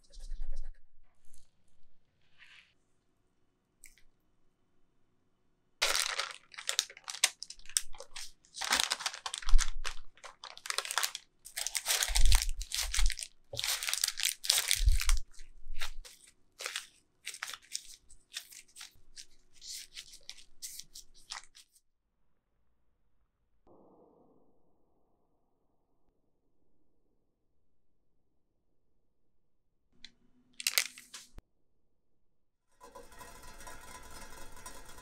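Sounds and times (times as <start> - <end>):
parchment paper crumpling: 5.8 - 21.8, 30.6 - 31.4.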